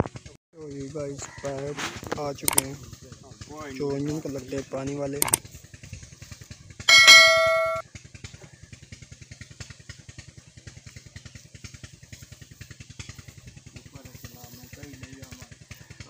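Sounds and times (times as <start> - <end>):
loud metallic clang: 6.9 - 7.8.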